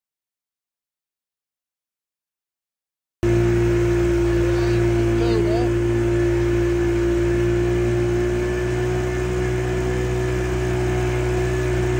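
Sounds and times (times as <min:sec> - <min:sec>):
motorboat engine running: 0:03.2 - 0:11.9.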